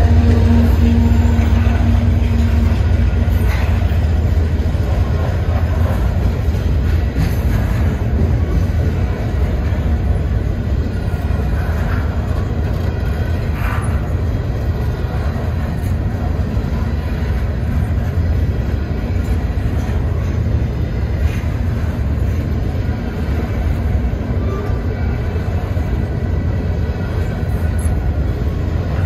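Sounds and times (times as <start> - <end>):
freight train cars rumbling past: 0.0 - 29.0.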